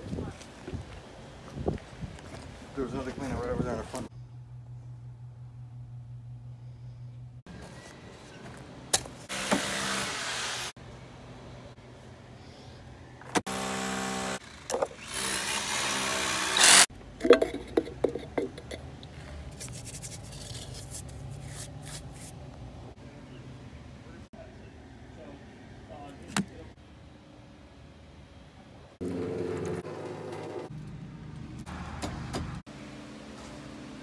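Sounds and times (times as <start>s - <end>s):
reciprocating saw cutting pipe: 13.5s - 16.9s.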